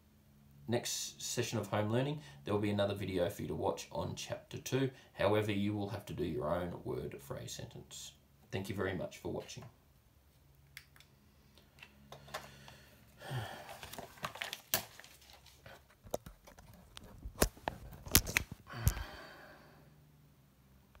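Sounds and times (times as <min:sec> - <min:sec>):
paper rustling: 0:13.6 - 0:19.0.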